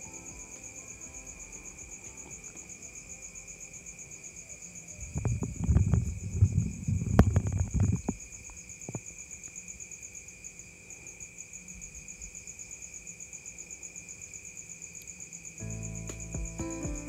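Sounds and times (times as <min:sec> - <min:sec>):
background music: 0:00.0 - 0:04.3, 0:15.6 - 0:17.0
crickets chirping: 0:00.0 - 0:17.0.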